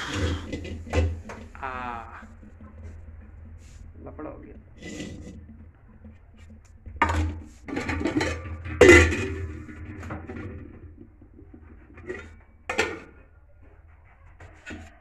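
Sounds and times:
pots and dishes clattering: 0.0 - 1.5, 6.9 - 11.0, 11.7 - 13.2.

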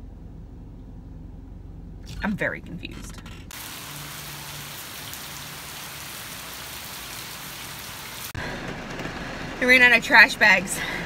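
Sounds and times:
rain falling on gravel and grass: 3.5 - 8.4.

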